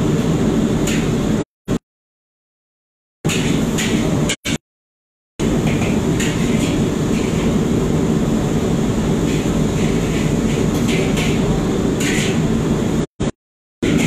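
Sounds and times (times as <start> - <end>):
gas stoves and extractor roar: 0.0 - 1.8, 3.3 - 4.6, 5.4 - 14.0
metal scraping on woks: 5.5 - 7.9, 8.7 - 12.5.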